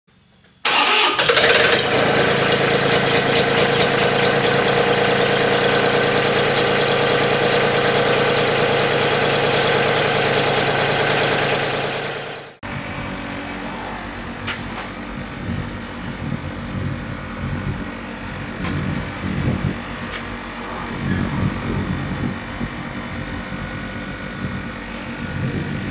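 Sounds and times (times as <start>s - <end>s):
tractor driving along: 0.6s - 20.6s
tractor engine running: 0.6s - 20.6s.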